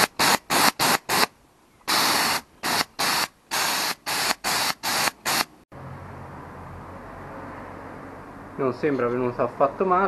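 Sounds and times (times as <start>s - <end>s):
paint spray gun hissing bursts: 0.0s - 1.3s, 1.9s - 5.6s.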